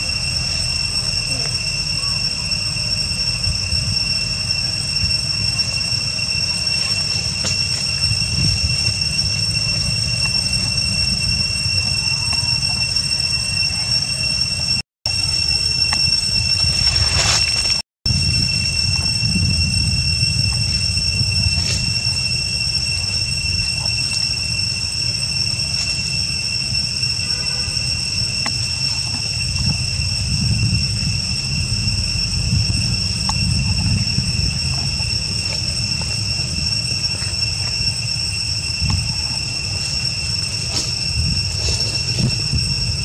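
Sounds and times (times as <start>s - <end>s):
cicadas droning: 0.0s - 43.0s
low rumble: 14.6s - 26.8s, 28.8s - 43.0s.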